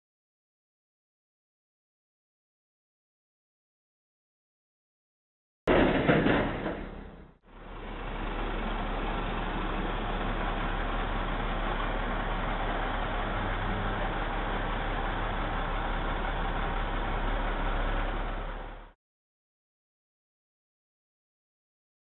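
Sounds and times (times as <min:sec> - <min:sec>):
vehicle engine running: 0:07.2 - 0:19.0.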